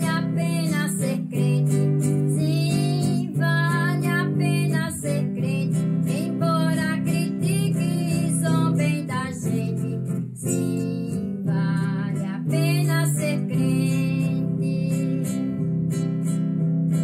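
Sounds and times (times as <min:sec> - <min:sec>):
person singing: 0:00.0 - 0:15.6
acoustic guitar chords: 0:00.0 - 0:17.0.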